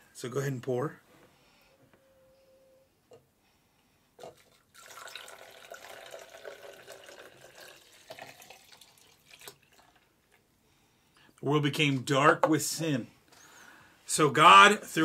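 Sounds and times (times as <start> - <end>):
liquid pouring into glass: 4.2 - 10.1.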